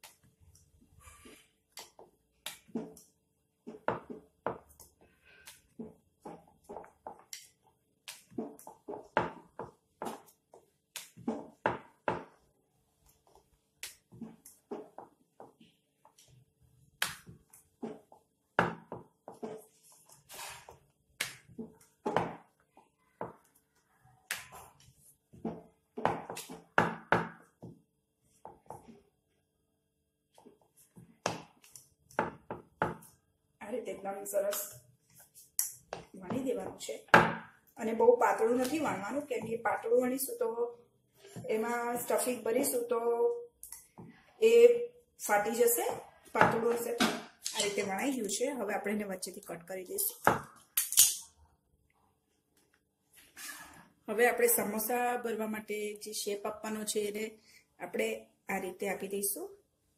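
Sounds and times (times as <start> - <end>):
rolling pin rolling dough: 0.0 - 29.3.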